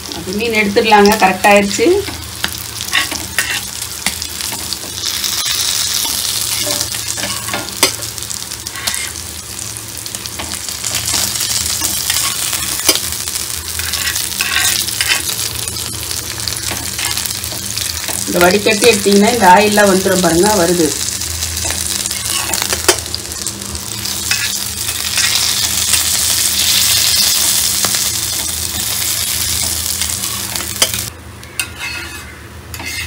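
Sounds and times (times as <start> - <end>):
fish sizzling in oil: 0.0 - 31.1
metal spatula scraping a pan: 2.8 - 3.7, 5.4 - 8.0, 8.6 - 9.2, 13.8 - 15.4, 31.6 - 33.0.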